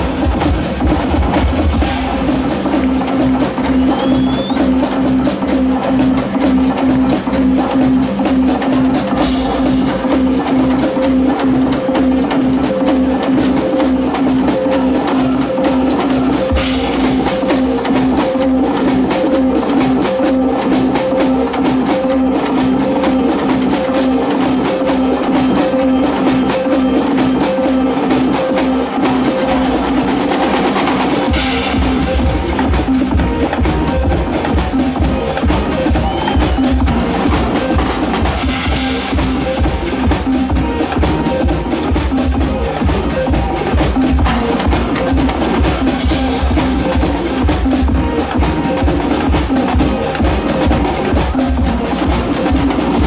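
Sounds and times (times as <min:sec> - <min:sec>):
loud music with drum beat: 0:00.0 - 0:53.0.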